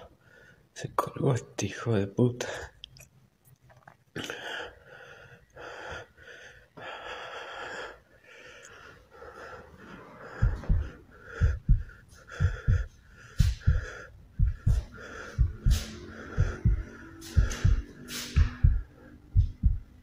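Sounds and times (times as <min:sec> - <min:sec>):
person breathing heavily: 0:04.2 - 0:20.0
heartbeat thumps: 0:10.2 - 0:20.0.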